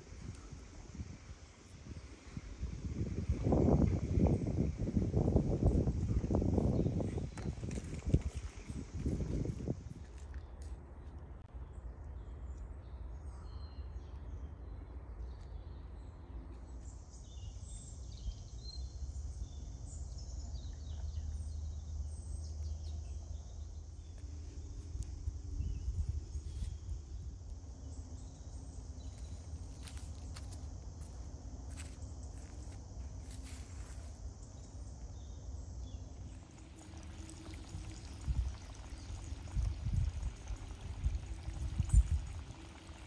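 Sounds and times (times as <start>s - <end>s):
low steady rumble: 19.1s - 43.0s.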